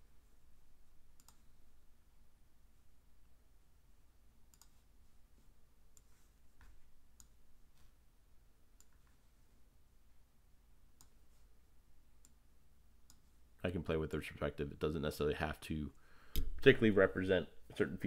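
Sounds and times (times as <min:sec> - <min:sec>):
low room hum: 0:00.0 - 0:18.0
computer mouse clicks: 0:01.2 - 0:01.5, 0:04.5 - 0:04.8, 0:07.2 - 0:07.4, 0:08.8 - 0:09.2, 0:11.0 - 0:11.2, 0:13.0 - 0:13.3.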